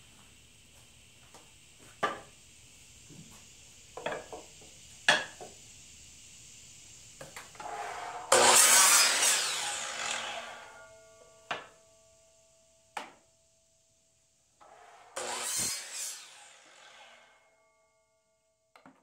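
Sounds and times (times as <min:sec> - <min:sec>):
miter saw cutting wood: 0:07.6 - 0:11.0, 0:14.6 - 0:17.4.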